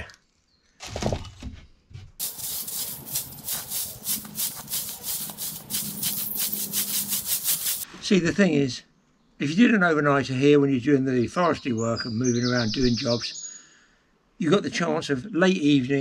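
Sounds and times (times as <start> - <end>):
twig broom sweeping earth: 2.2 - 8.1.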